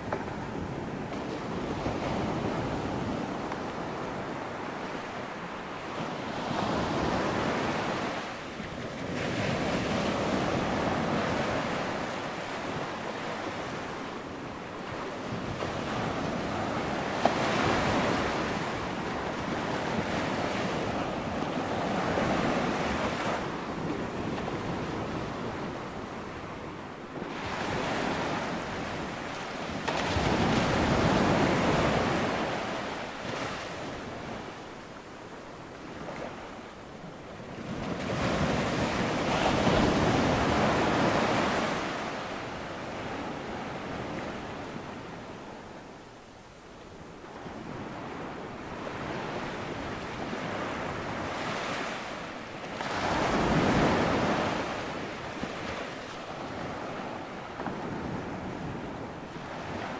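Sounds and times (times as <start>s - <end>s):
ocean waves breaking: 0.0s - 45.8s, 47.2s - 59.9s.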